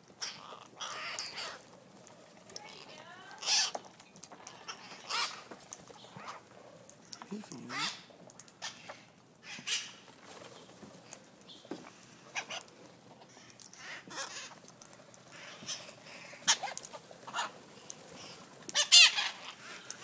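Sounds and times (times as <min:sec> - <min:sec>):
parakeets calling: 0:00.0 - 0:20.0.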